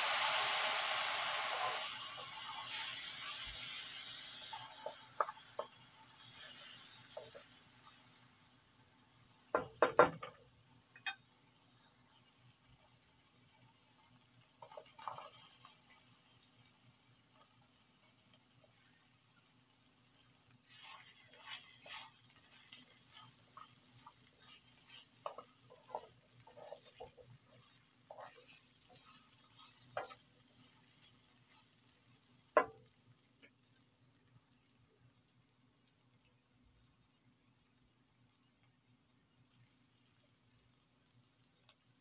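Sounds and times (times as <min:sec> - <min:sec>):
vegetables sizzling in oil: 0:00.0 - 0:42.0
spatula scraping a pan: 0:01.2 - 0:08.2, 0:13.5 - 0:16.4, 0:20.6 - 0:32.0
knock on a pan: 0:09.6 - 0:10.4, 0:32.6 - 0:32.8.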